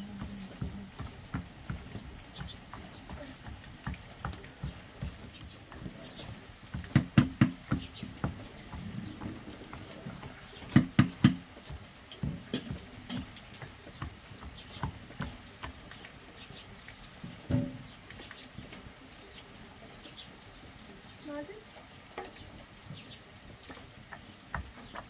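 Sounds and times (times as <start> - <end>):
wooden pestle pounding steel jug: 0.2 - 9.4, 10.7 - 15.4.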